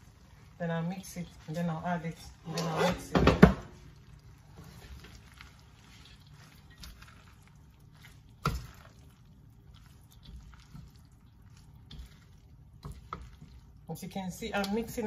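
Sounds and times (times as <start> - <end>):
spatula scraping in wok: 2.2 - 3.4.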